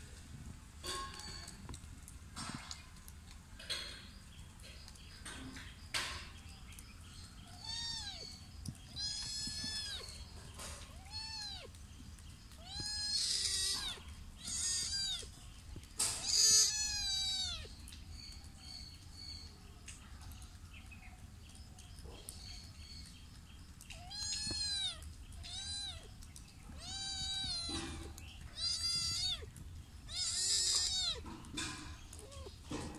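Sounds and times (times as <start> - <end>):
cat meowing: 7.5 - 10.2, 10.9 - 11.8, 12.5 - 15.3, 16.1 - 17.7, 23.9 - 26.1, 26.7 - 31.2.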